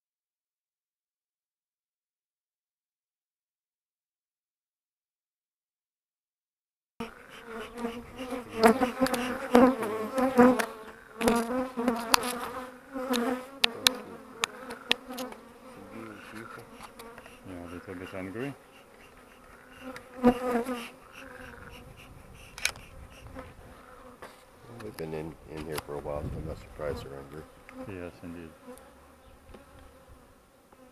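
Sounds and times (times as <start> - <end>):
honeybees buzzing: 7.0 - 30.9
sharp clicks: 13.1 - 15.4, 22.5 - 22.9.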